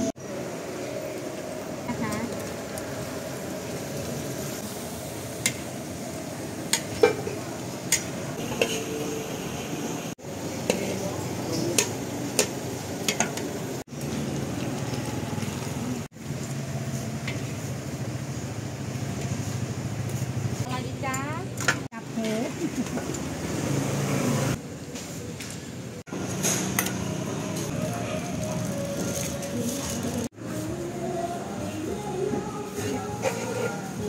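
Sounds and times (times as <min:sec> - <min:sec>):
prawns sizzling in a wok: 0:00.3 - 0:09.4.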